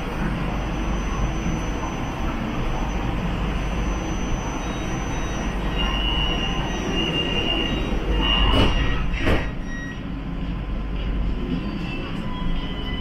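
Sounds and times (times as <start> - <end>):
train wheels rumbling on track: 0.0 - 13.0
high-pitched squeal: 3.8 - 9.9.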